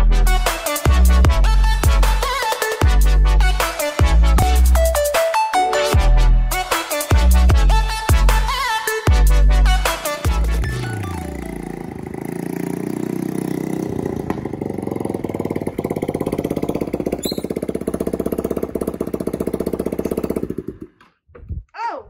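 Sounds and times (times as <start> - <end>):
scooter engine running: 10.3 - 21.1.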